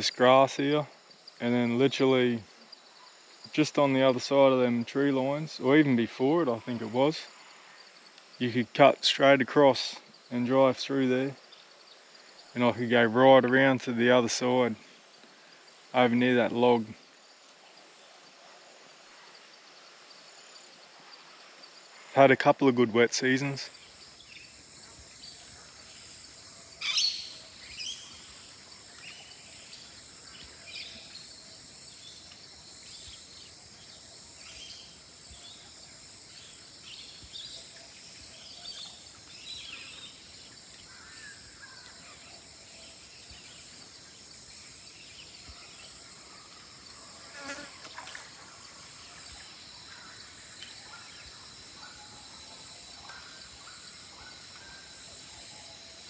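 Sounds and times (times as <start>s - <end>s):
high-pitched insect drone: 23.6s - 56.0s
bird chirps and calls: 26.8s - 28.3s.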